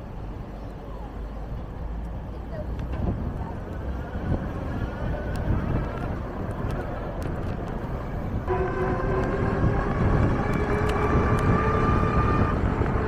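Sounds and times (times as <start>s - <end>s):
wind rumble on microphone: 0.0s - 13.0s
sustained chord of steady tones: 8.5s - 10.5s.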